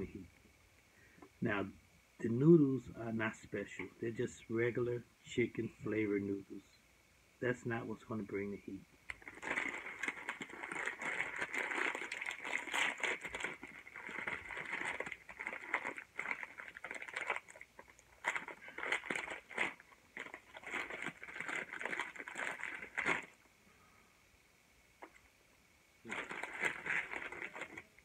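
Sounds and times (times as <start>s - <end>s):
plastic wrapper crinkling: 9.1s - 23.4s, 26.0s - 28.0s.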